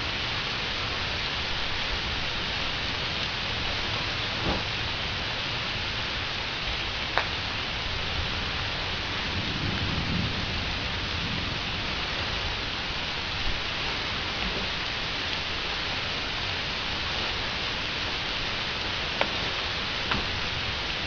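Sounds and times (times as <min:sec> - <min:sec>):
steady rain: 0:00.0 - 0:21.0
distant thunder rumble: 0:09.1 - 0:15.2.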